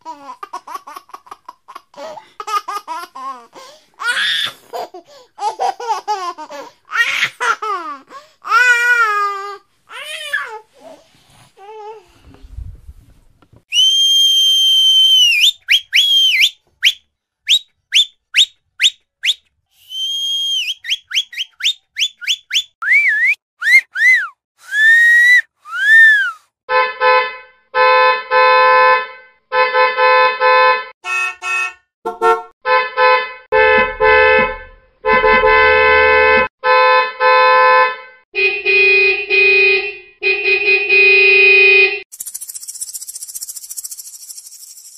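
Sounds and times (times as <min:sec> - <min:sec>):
whistling: 0:13.7 - 0:26.5, 0:42.2 - 0:44.9
car horn honking: 0:26.7 - 0:42.0.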